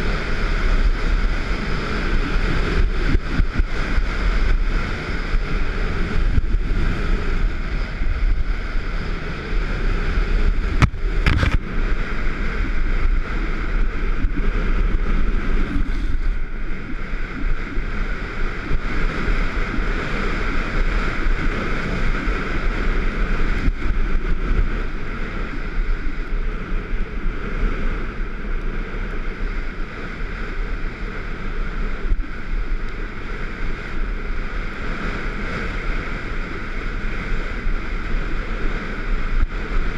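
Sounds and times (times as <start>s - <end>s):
skis scraping over snow: 0.0s - 28.2s
wind buffeting microphone: 0.0s - 39.9s.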